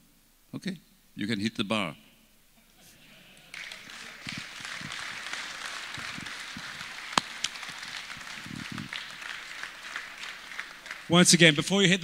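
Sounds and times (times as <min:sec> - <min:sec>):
audience applauding: 0:03.3 - 0:11.8.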